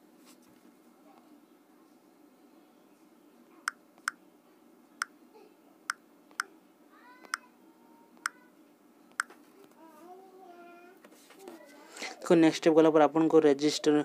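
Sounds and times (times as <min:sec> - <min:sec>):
faint high-pitched voice: 0:00.9 - 0:03.8, 0:05.3 - 0:05.8, 0:06.4 - 0:12.2.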